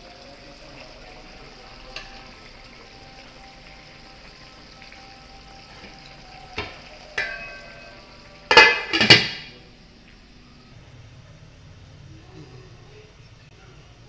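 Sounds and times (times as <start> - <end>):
faint sizzle of simmering food: 0.0 - 14.0
pot lid clattering on pot: 7.2 - 7.9, 8.5 - 9.5.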